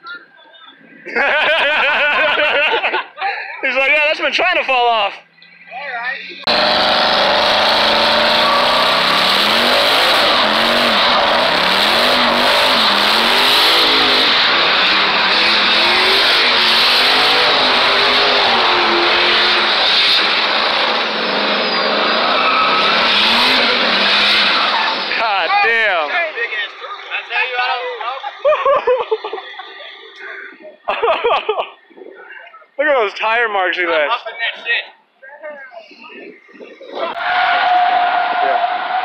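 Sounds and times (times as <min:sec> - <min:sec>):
truck engine revving: 0:05.2 - 0:32.4
tires squealing: 0:06.2 - 0:31.0, 0:35.9 - 0:39.0.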